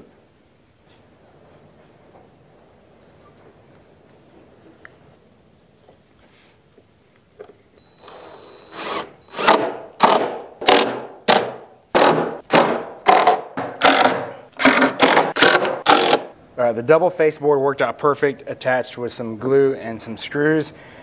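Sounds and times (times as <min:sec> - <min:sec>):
cordless drill driving screws: 0:08.0 - 0:10.9.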